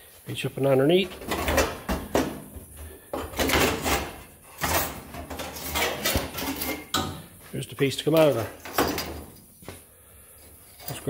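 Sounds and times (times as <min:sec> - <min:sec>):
sheet metal scraping and rattling: 0:01.0 - 0:02.4, 0:03.2 - 0:07.3, 0:08.3 - 0:09.4.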